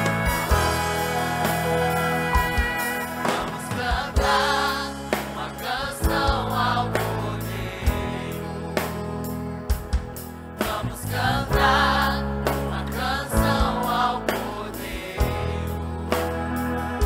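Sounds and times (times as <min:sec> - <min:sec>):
trombone: 0:00.0 - 0:04.7
band accompaniment: 0:00.0 - 0:17.0
choir singing gospel: 0:00.0 - 0:17.0.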